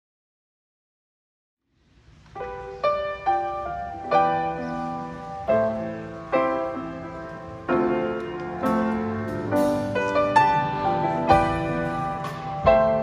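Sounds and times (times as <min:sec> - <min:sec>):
grand piano chords: 0:01.7 - 0:13.0.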